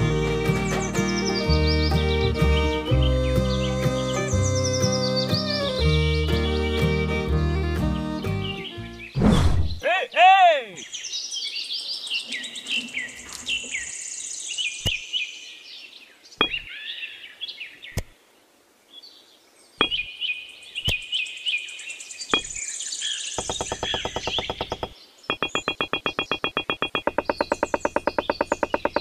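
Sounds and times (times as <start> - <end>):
birds chirping: 0.0 - 18.2, 18.9 - 29.0
clay bricks clicking: 23.4 - 29.0.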